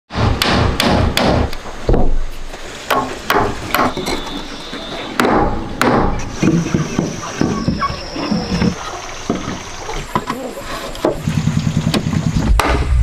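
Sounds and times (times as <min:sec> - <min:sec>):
hammer striking wood: 0:00.1 - 0:02.2, 0:02.9 - 0:04.2, 0:05.2 - 0:07.7, 0:11.9 - 0:12.9.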